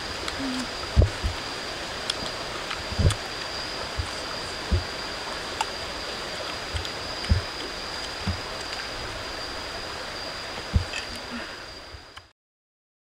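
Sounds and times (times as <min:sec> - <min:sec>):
running water rushing: 0:00.0 - 0:12.3
thin high whine: 0:00.0 - 0:12.3
soft low thumps: 0:00.4 - 0:01.5, 0:02.9 - 0:03.3, 0:03.9 - 0:05.0, 0:06.7 - 0:07.6, 0:08.2 - 0:08.5, 0:10.6 - 0:11.0.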